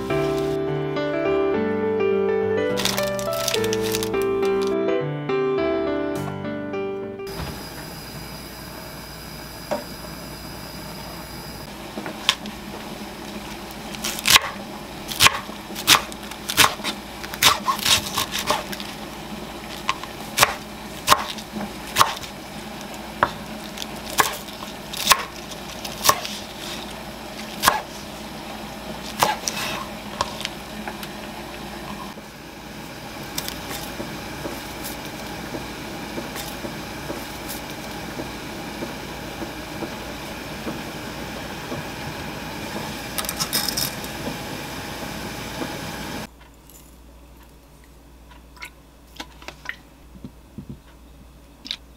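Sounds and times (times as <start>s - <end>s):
gas burner hissing: 0.0s - 0.6s, 7.3s - 46.3s
knife chopping on wooden board: 14.0s - 14.6s, 15.2s - 18.7s, 19.8s - 22.3s, 24.1s - 24.4s, 25.0s - 25.4s, 26.0s - 26.4s, 27.6s - 27.9s, 29.2s - 30.4s.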